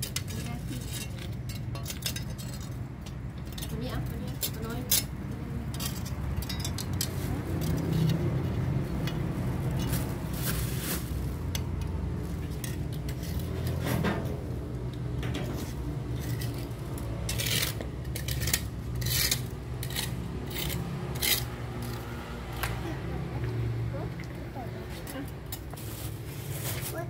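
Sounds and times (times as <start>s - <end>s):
metal tongs scraping concrete: 0.0s - 9.9s, 11.5s - 22.7s.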